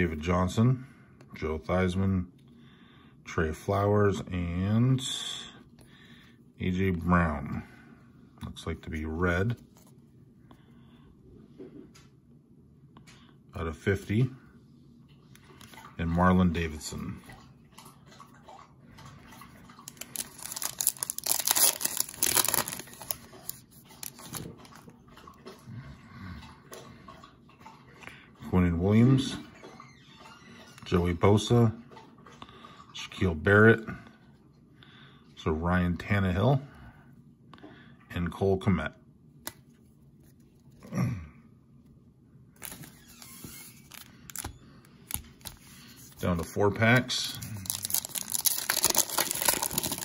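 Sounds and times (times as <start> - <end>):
wrapper being torn and crinkled: 19.9 - 24.6, 42.6 - 44.5, 47.3 - 50.0.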